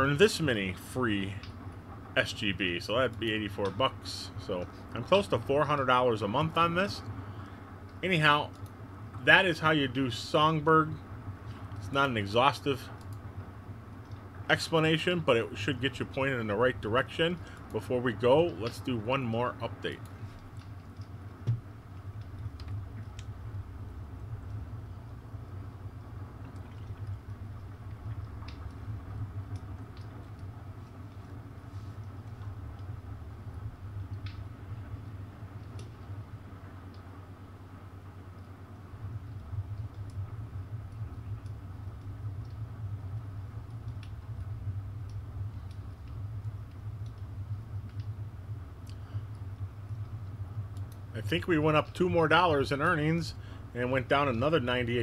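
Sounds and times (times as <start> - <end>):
low background hum: 0.0 - 55.0
faint clicks: 7.0 - 9.2, 12.8 - 14.5, 19.8 - 23.6, 24.2 - 37.3, 38.1 - 55.0.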